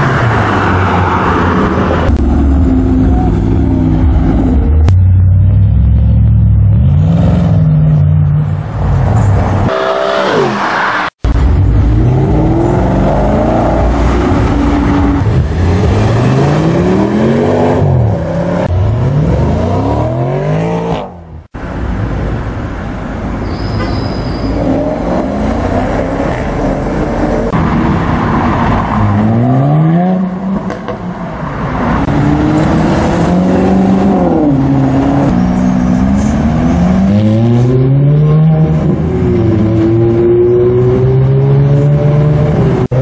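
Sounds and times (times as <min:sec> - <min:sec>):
car engines revving accelerating: 0:06.5 - 0:21.4, 0:24.5 - 0:43.0.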